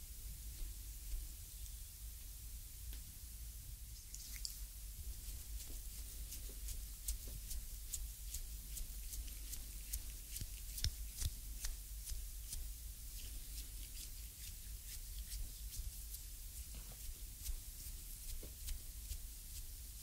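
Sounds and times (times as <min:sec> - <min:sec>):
steady low hum: 0:00.0 - 0:20.0
thumb kneading skin: 0:05.3 - 0:19.7.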